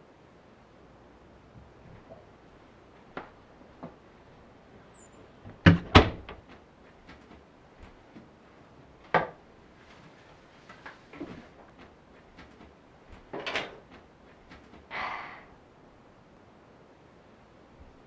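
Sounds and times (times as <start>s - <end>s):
door shutting and latch catching: 5.5s - 6.5s, 13.1s - 13.9s
knocks on door: 5.6s - 6.5s.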